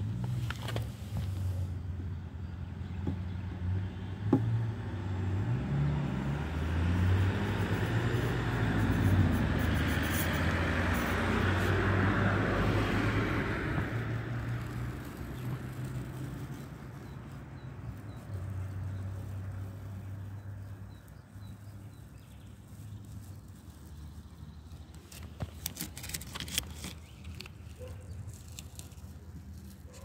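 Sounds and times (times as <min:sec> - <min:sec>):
masking tape ripping: 0:25.0 - 0:29.3.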